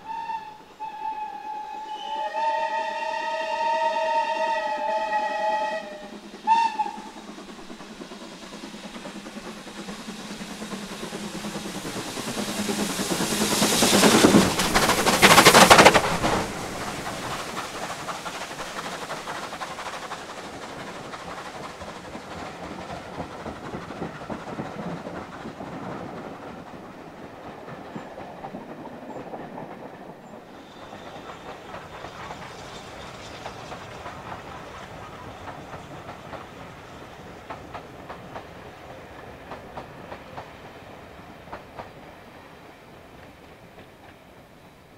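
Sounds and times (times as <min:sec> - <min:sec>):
steam whistle blast: 0:00.0 - 0:07.1
steam locomotive passing: 0:00.0 - 0:44.9
train coaches rolling on rails: 0:01.3 - 0:44.9.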